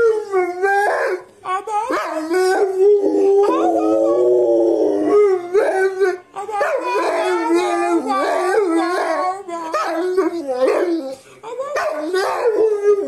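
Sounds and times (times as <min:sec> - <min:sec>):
dog howling: 0:01.9 - 0:11.1.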